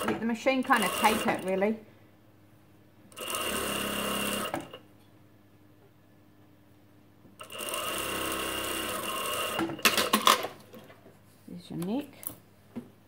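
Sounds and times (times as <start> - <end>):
sewing machine stitching: 0.0 - 1.6, 3.1 - 4.8, 7.4 - 10.6.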